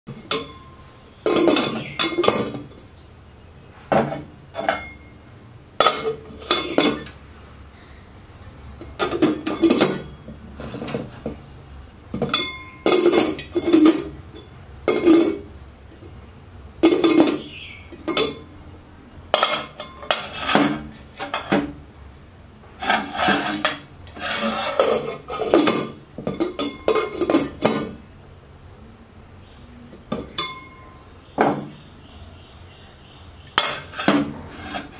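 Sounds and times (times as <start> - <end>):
metal lid clanking on pot: 1.3 - 2.8, 5.8 - 7.2, 8.9 - 11.4, 12.2 - 15.5, 16.8 - 18.5, 19.4 - 21.8, 22.8 - 28.0, 30.0 - 31.8, 33.6 - 34.9.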